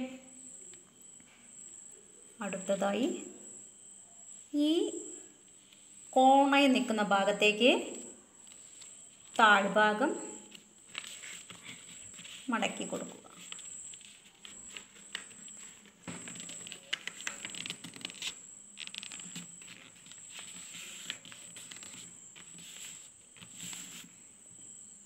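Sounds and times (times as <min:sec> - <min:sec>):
paper rustling as folded: 0:10.5 - 0:24.2.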